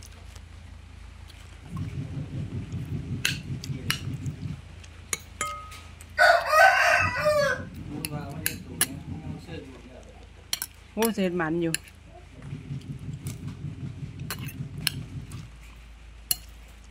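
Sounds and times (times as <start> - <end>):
low rumble: 1.6 - 10.5, 12.0 - 16.4
rooster crowing: 6.2 - 7.8.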